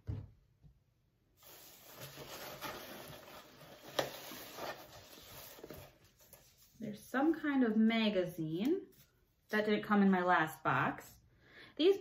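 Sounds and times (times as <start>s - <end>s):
shredded paper rustling: 1.4s - 6.8s.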